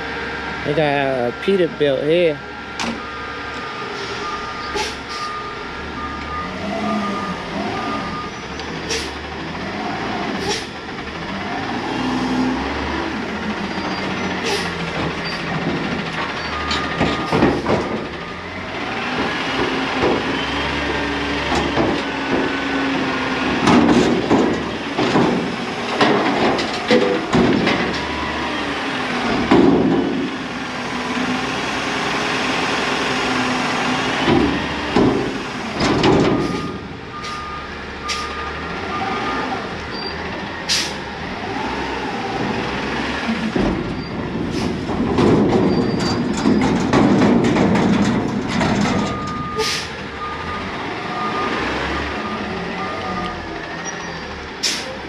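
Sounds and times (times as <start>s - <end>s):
diesel engine revving: 0.0s - 55.0s
reversing beeps: 3.0s - 8.5s, 36.3s - 39.5s, 49.1s - 54.1s.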